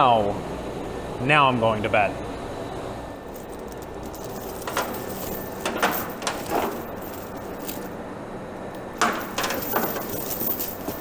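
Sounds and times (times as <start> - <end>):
steel chain rattling and clinking: 3.3 - 8.0, 9.0 - 11.0.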